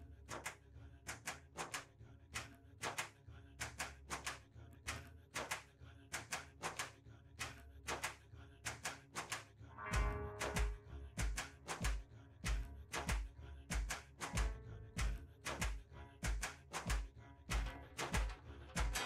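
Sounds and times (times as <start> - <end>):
soft rhythmic background music: 9.8 - 19.0.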